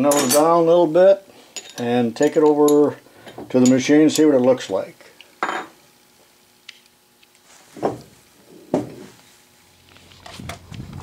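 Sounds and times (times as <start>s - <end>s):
metal knocks and clinks: 0.1s - 0.5s.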